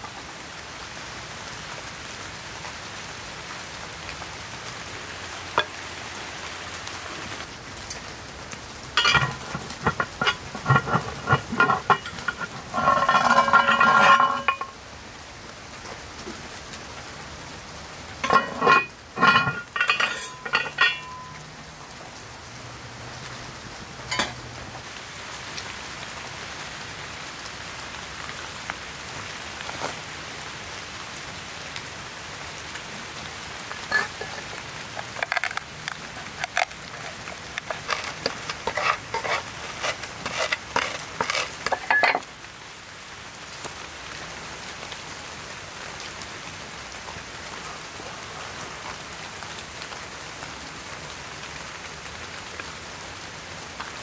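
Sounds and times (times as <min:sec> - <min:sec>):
rain patter: 0:00.0 - 0:54.0
peppercorns crunching under knife: 0:35.0 - 0:41.7.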